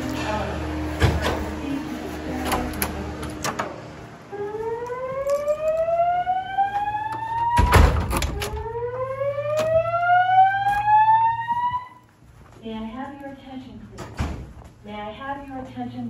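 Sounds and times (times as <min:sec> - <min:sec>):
fire alarm whoop tone: 0:04.3 - 0:12.1.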